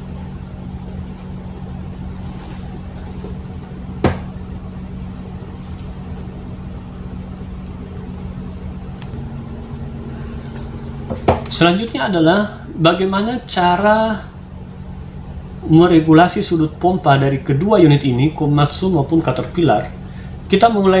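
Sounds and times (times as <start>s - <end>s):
low mechanical hum: 0.0s - 21.0s.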